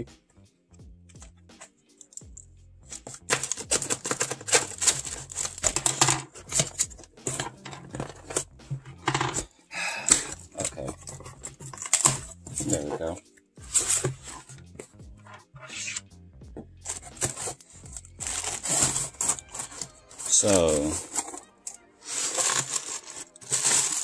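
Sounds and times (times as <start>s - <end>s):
packing tape ripping: 2.9s - 13.1s, 16.8s - 24.0s
cardboard crinkling and scraping: 2.9s - 16.0s, 16.8s - 24.0s.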